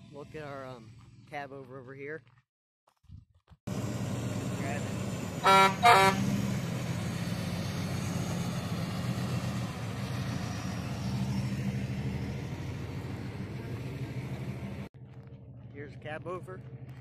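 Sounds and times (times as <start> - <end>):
diesel truck engine at low revs: 3.7 - 17.0.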